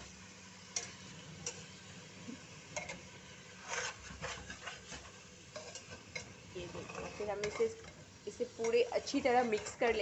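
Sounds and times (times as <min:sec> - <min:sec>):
faint frying sizzle: 0:00.0 - 0:10.0
spatula clicking against pot: 0:00.7 - 0:01.6
spatula stirring in metal pot: 0:02.7 - 0:10.0
spatula scraping pot: 0:03.6 - 0:10.0.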